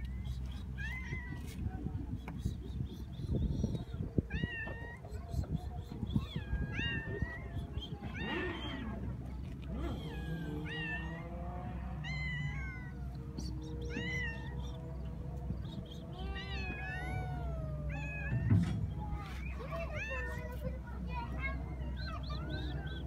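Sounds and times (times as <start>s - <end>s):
cat meowing: 4.3s - 5.1s, 6.1s - 9.0s, 9.8s - 18.9s.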